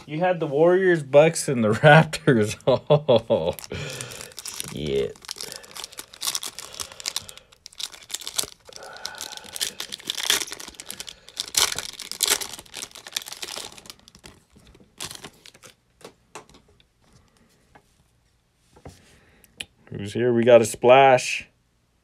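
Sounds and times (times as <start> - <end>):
foil pack tearing and crinkling: 3.5 - 15.8.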